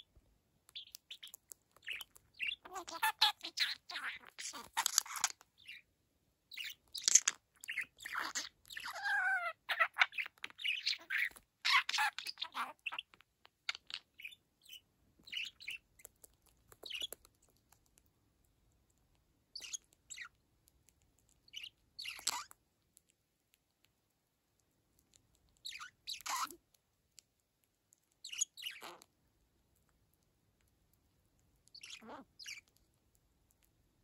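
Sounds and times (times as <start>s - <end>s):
budgerigar chattering and warbling: 0.8s - 5.8s, 6.5s - 15.8s, 16.8s - 17.2s, 19.6s - 20.3s, 21.5s - 22.5s, 25.6s - 26.6s, 28.2s - 29.0s, 31.7s - 32.7s.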